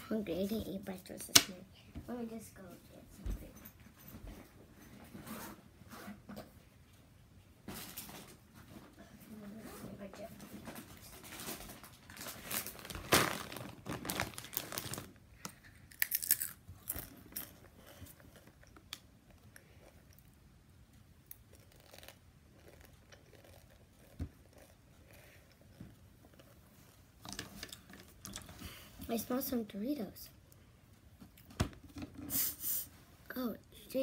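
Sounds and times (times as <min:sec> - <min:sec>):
foil chip bag crinkling: 0:11.2 - 0:15.2.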